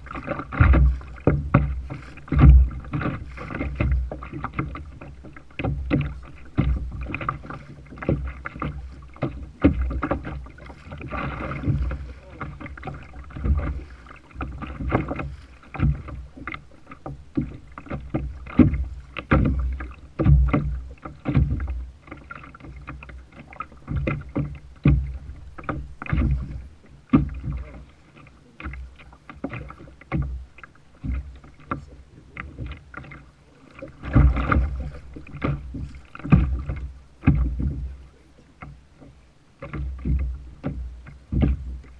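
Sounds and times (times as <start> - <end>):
water slapping against kayak hull: 0.0 - 41.9.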